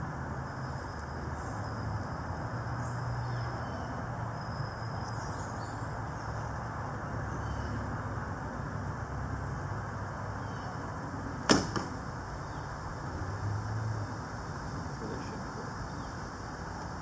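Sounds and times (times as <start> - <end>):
steady hiss: 4.0 - 17.0.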